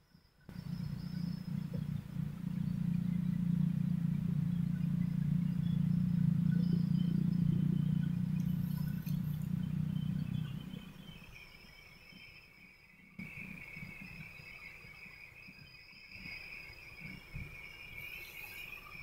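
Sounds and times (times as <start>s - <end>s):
engine drone: 0.4s - 19.0s
faint clicks: 8.4s - 9.7s.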